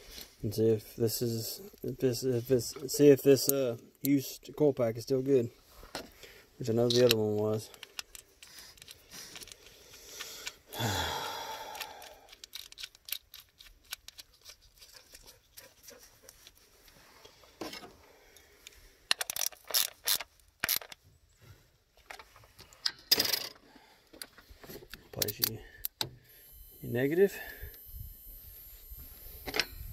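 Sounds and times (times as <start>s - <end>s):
plastic clicks of ignition coil: 6.8s - 10.7s, 11.7s - 14.6s, 18.6s - 21.0s, 24.1s - 26.2s
man sighing: 10.7s - 12.3s.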